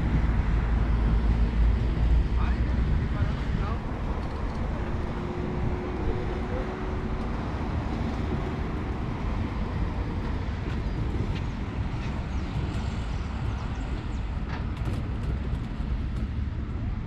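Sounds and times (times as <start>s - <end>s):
road traffic rumble: 0.0s - 17.0s.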